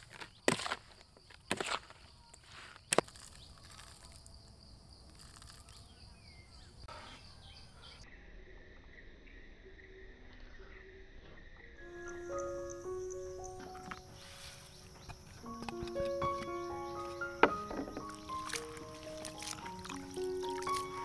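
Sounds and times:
high insect drone: 11.8s - 21.0s.

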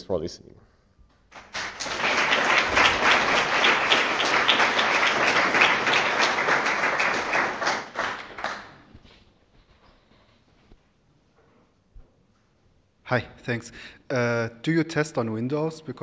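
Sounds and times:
audience applauding: 1.3s - 9.0s.

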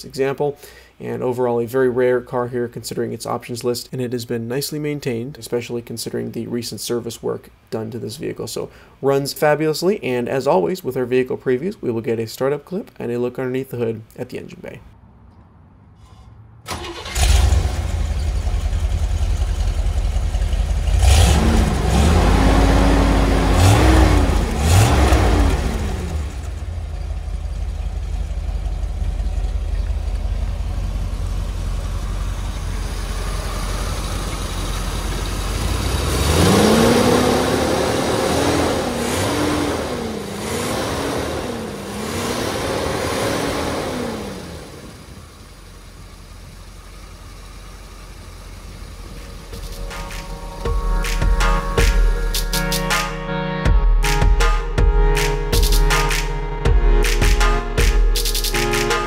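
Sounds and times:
car engine idling and revving: 15.1s - 52.6s.

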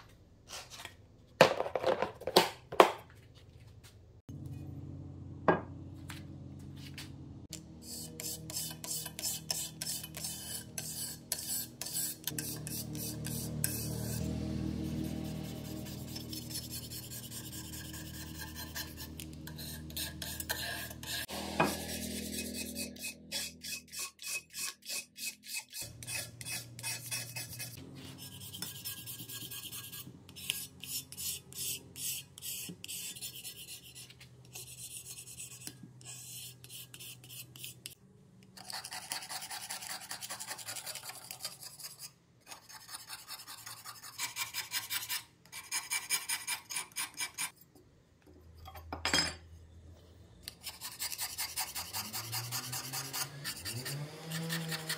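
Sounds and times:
razor scraper rasping on wood: 7.8s - 14.3s, 14.9s - 38.0s, 50.6s - 54.9s
scraper scraping metal: 7.8s - 37.8s, 50.6s - 54.9s.

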